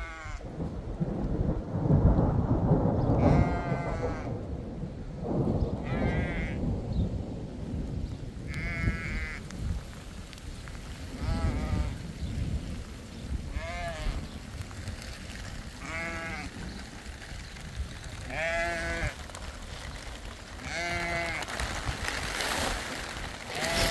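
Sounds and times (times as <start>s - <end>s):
sheep bleating: 0.0s - 0.4s, 3.2s - 4.3s, 5.8s - 6.6s, 15.8s - 16.6s, 18.2s - 19.2s, 20.6s - 21.5s, 23.5s - 23.9s.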